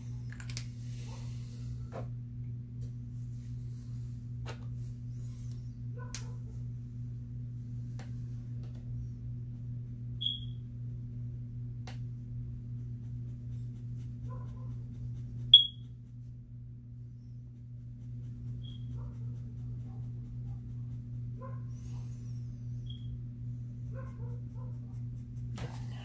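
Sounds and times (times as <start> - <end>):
low electrical hum: 0.0 - 26.0
high-pitched chirps: 10.2 - 10.5, 15.6 - 15.8.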